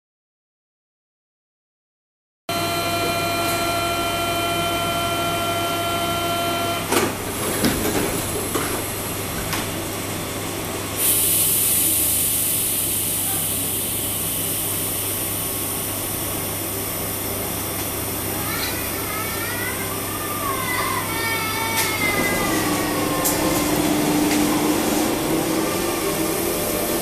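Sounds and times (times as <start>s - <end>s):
train warning tone: 2.5s - 6.9s
train low hum: 2.5s - 27.0s
compressed air hiss: 11.0s - 19.0s.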